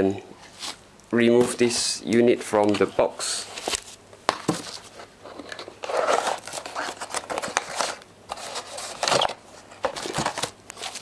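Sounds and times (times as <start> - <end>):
cardboard scraping and rustling: 2.6 - 11.0.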